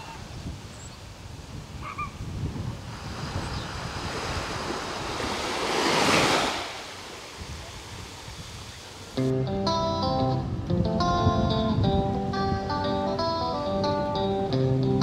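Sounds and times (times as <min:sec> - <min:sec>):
wind rumble on microphone: 0:00.0 - 0:06.7, 0:07.3 - 0:15.0
small waves washing onto shore: 0:00.0 - 0:09.2
acoustic guitar music: 0:09.2 - 0:15.0.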